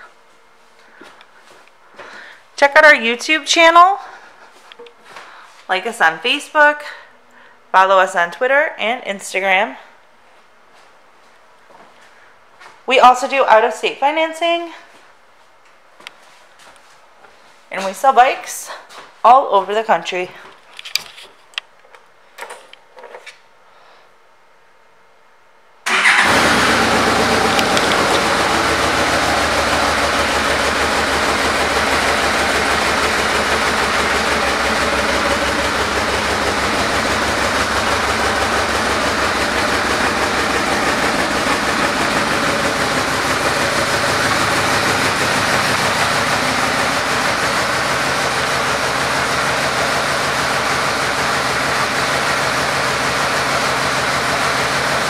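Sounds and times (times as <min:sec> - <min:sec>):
motorcycle engine starting and idling: 0:25.9 - 0:55.0.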